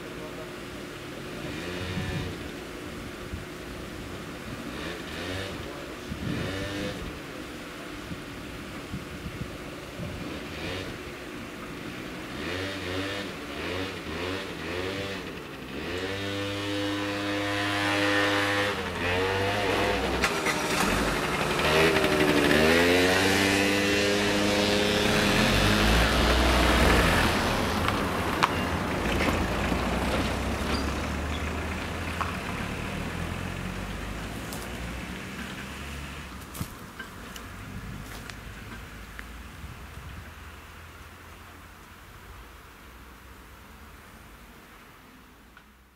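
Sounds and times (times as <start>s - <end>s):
car engines revving: 0.0s - 9.0s, 9.6s - 39.6s
low rumble of traffic: 0.0s - 45.9s
car passing close: 10.2s - 39.5s.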